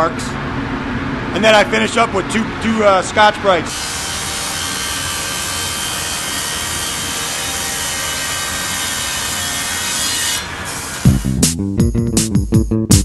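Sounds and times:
disc sander on metal: 3.7 - 11.2
music with bass beat: 11.1 - 13.0.

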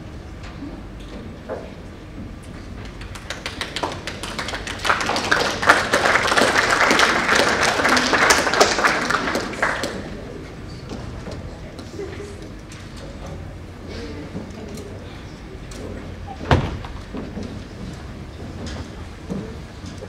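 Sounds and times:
audience applauding: 2.8 - 10.4.

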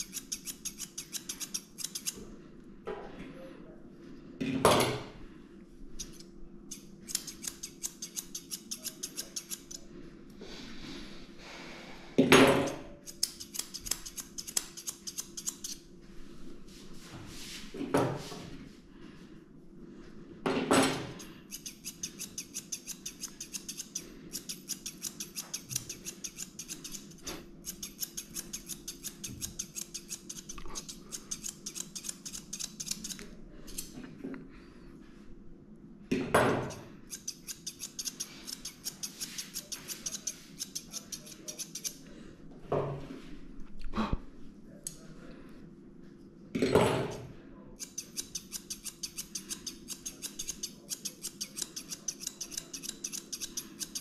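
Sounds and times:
scissors snipping hair: 0.0 - 2.2, 6.0 - 9.8, 12.6 - 15.8, 21.5 - 34.0, 36.6 - 42.0, 47.8 - 54.0.

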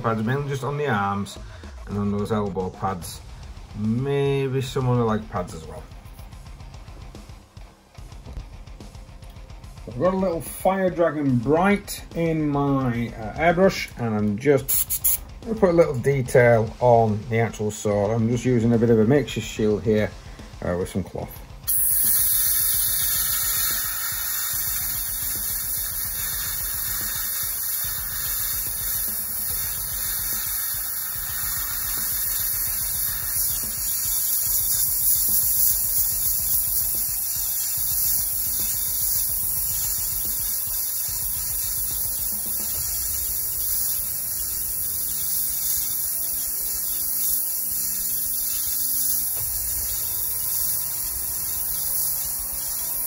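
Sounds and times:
airbrush hissing: 12.4 - 15.4, 21.5 - 53.0.

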